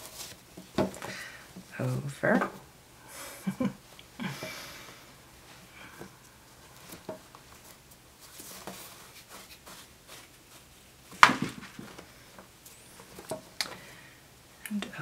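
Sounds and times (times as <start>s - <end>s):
fabric rustling and scraping: 0.0s - 2.7s, 4.7s - 13.6s.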